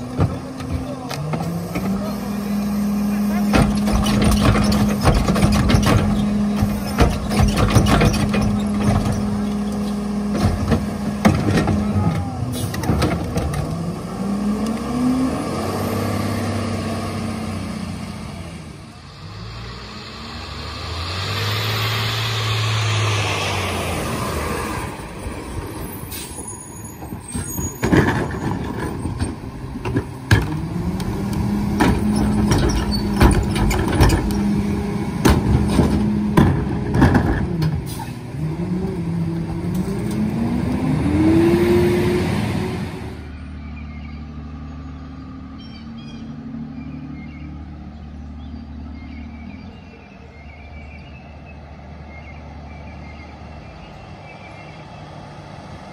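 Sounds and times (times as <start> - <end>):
truck engine revving: 0.0 - 55.9
bangs and clatter of bins: 3.4 - 9.4, 10.3 - 13.7, 27.1 - 30.7, 31.7 - 34.5, 35.2 - 38.0.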